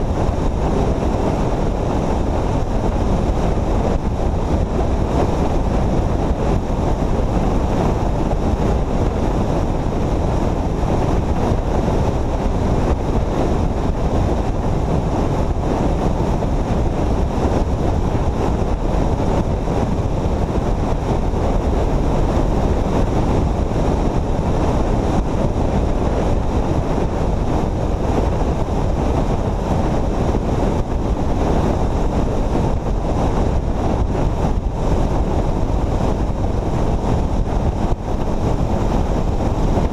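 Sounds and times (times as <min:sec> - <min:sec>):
road noise: 0:00.0 - 0:39.9
wind rush on microphone: 0:00.0 - 0:39.9.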